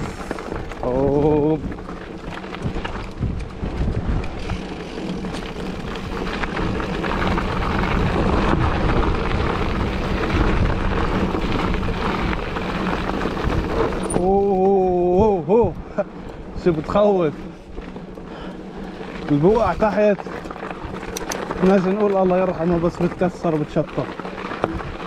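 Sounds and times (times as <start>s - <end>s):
wind on microphone: 0.0s - 16.0s
mountain bike rattling on trail: 0.0s - 25.0s.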